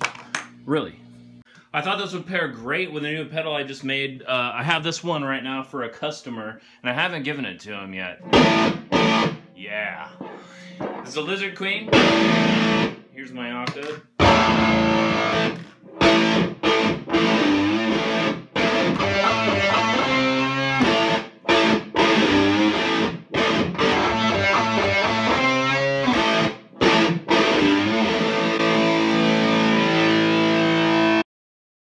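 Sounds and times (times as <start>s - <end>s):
distorted electric guitar riffs: 8.2s - 13.0s, 13.8s - 31.2s.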